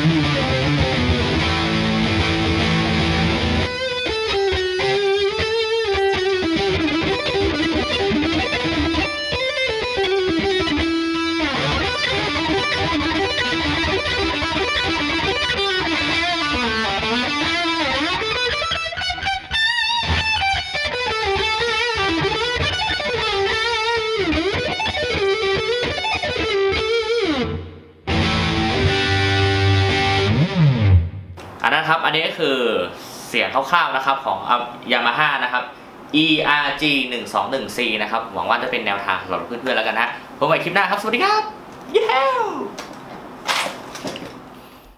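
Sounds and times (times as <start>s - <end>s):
distorted electric guitar lead: 0.0s - 31.4s.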